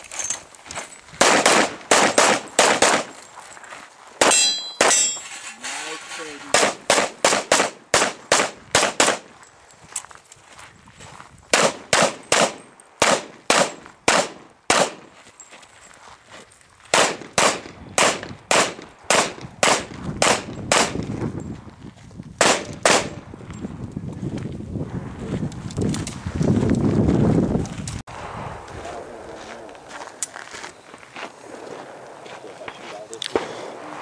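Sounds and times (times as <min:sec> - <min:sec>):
pistol shots: 0:01.2 - 0:03.1, 0:04.2 - 0:05.1, 0:06.5 - 0:09.3, 0:11.5 - 0:15.1, 0:16.9 - 0:21.1, 0:22.4 - 0:23.2.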